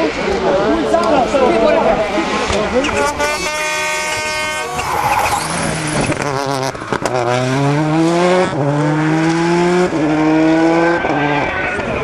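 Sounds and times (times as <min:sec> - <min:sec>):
rally car engine accelerating: 0:04.8 - 0:12.0.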